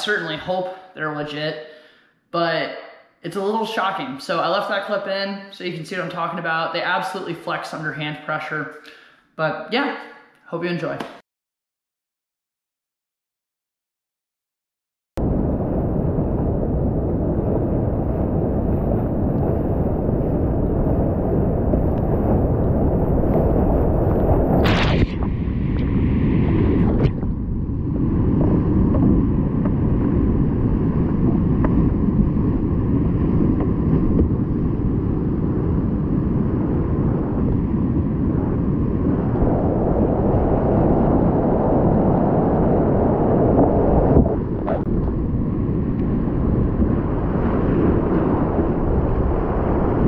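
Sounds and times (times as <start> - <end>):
wind buffeting microphone: 15.2 - 50.0.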